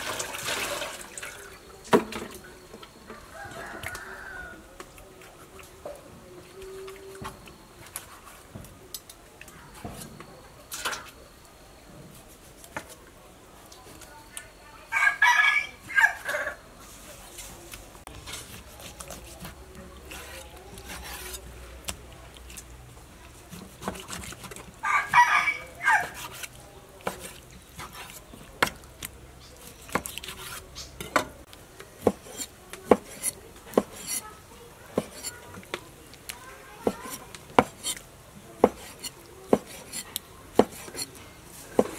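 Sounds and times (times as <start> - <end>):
rooster crowing: 3.1 - 4.7, 14.9 - 16.6, 24.8 - 26.2
knife slicing meat on board: 18.3 - 21.4, 23.5 - 24.6, 26.0 - 28.8, 29.7 - 31.2, 32.0 - 34.3, 34.9 - 35.4, 36.8 - 38.0, 38.6 - 41.2.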